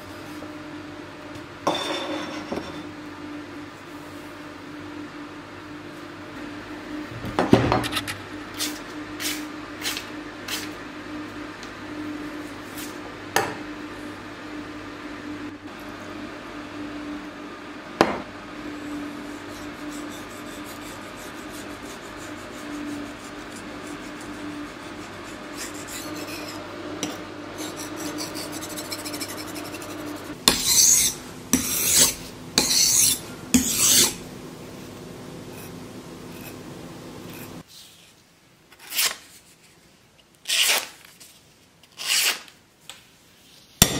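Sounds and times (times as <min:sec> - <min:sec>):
knife scraping on whetstone: 0:19.4 - 0:34.2, 0:37.3 - 0:37.6.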